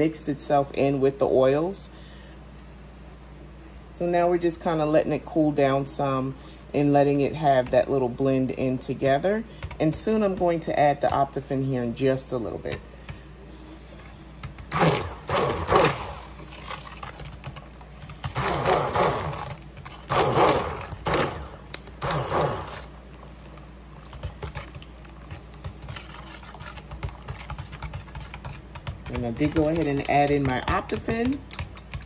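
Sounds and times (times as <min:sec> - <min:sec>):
low steady hum: 0:00.0 - 0:32.0
stick blender churning lotion: 0:13.9 - 0:32.0.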